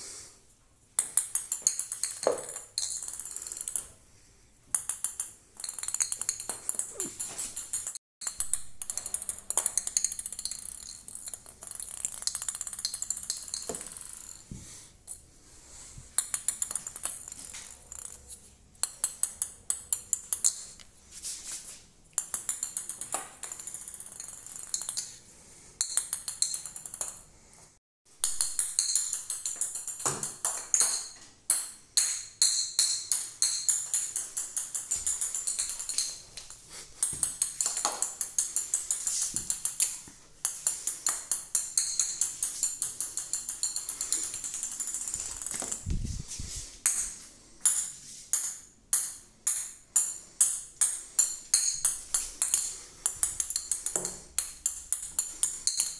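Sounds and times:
jingle bell ball rattling on tiles: 1.0 - 4.0, 4.6 - 21.1, 22.1 - 27.5, 28.2 - 55.9.

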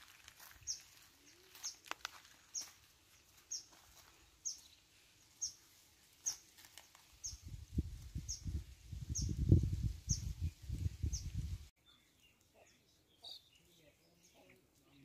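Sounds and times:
rustles on dry leaves: 0.0 - 11.7.

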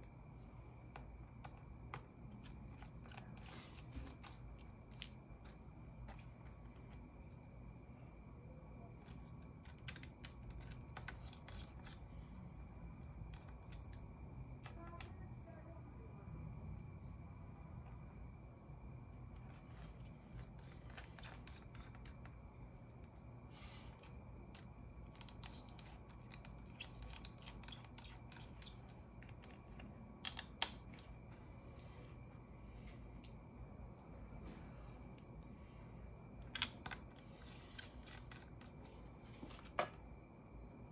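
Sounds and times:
steady hum: 0.0 - 40.9
small tools clicking and tapping: 9.0 - 12.0, 14.6 - 15.2, 24.5 - 31.9, 36.4 - 40.0
hand tools clicking and scraping: 36.4 - 40.0.

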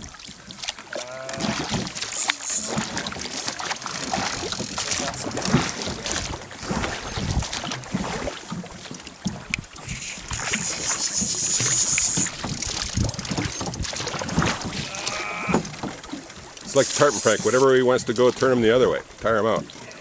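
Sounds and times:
water slapping boat hull: 0.0 - 20.0
oar and boat knocks: 0.6 - 9.8, 11.6 - 16.8
wind buffeting microphone: 9.3 - 19.3.

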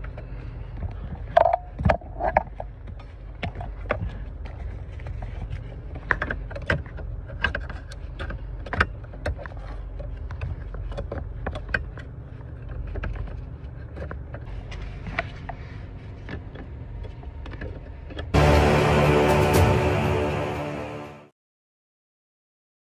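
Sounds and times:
steady low rumble: 18.4 - 21.3.

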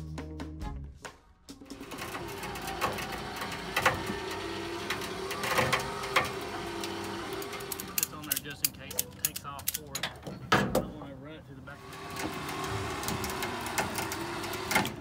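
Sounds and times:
ratchet strap clicking: 5.0 - 10.0.

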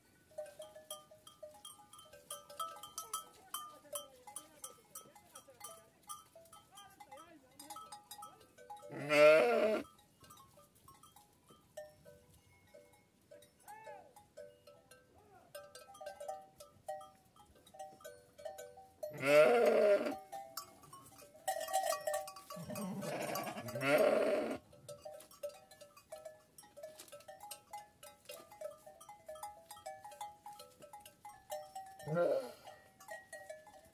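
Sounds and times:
sheep bleating: 8.9 - 9.8, 19.1 - 20.2, 22.6 - 24.6, 32.0 - 32.6.

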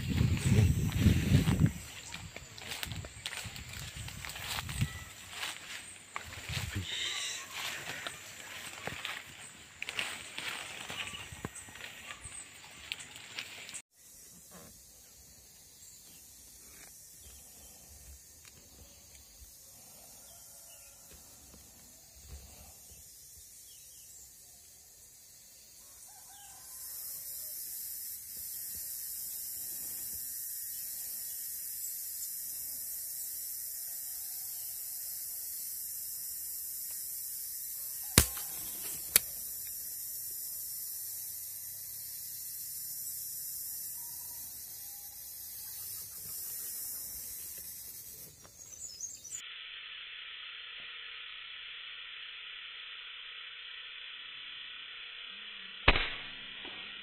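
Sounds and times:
high-pitched insect drone: 0.0 - 57.0
sharp cracks: 38.2 - 39.3, 55.8 - 57.0.

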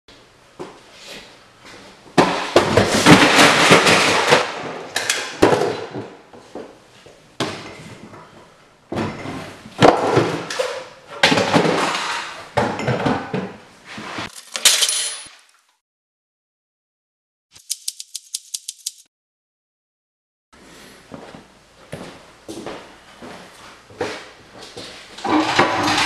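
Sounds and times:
objects clattering: 2.2 - 6.2, 7.4 - 15.4, 25.2 - 26.0.

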